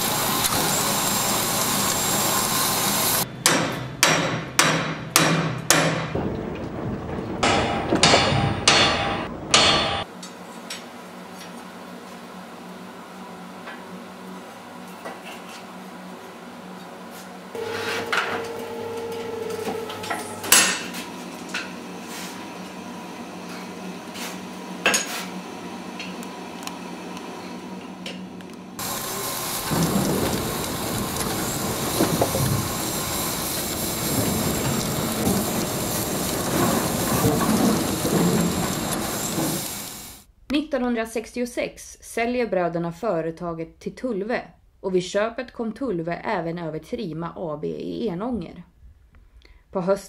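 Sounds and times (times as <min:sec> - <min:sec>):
metallic clanks and knocks: 0:03.5 - 0:10.1, 0:17.6 - 0:21.0, 0:29.6 - 0:39.7
dense metal clatter: 0:05.7 - 0:10.1, 0:28.8 - 0:40.1
faint hum: 0:17.6 - 0:21.6.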